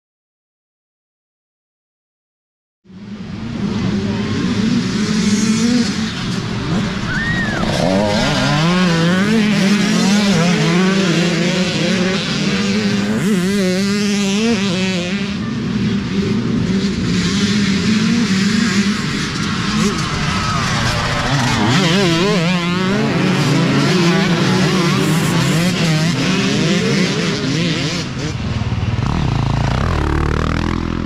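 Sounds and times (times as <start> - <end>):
dirt bike engines revving: 2.9 - 31.0.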